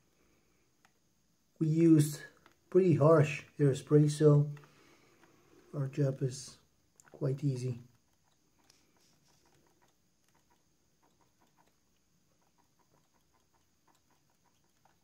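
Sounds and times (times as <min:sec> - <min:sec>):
paintbrush scratching plastic: 0:07.0 - 0:15.0.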